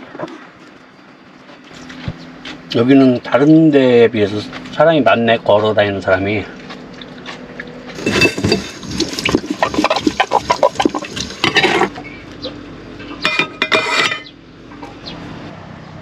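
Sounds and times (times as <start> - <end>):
running water splashing: 6.5 - 12.0
utensils clattering against a pot: 8.0 - 12.0, 13.0 - 14.4.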